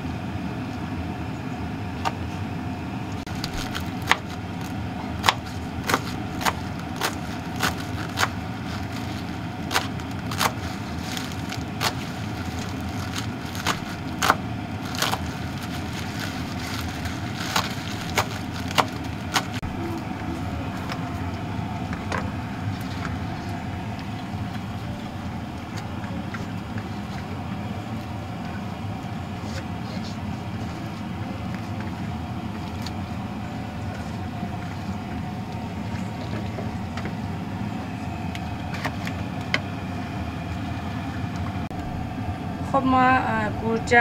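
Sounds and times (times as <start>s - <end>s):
low rumble: 41.7s - 44.0s.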